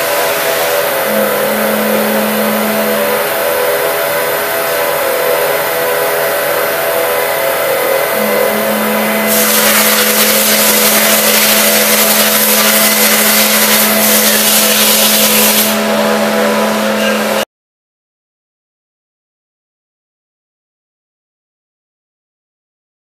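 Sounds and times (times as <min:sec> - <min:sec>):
loud hiss: 0:00.0 - 0:15.8
low steady hum: 0:00.0 - 0:17.4
machining center whine: 0:00.0 - 0:17.5.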